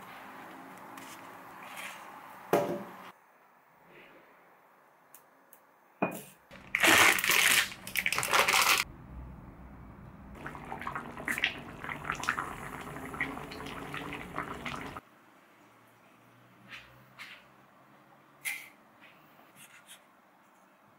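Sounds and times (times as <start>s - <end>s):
water pouring: 6.6s - 8.8s, 10.3s - 15.0s
soup bubbling in saucepan: 10.3s - 15.0s.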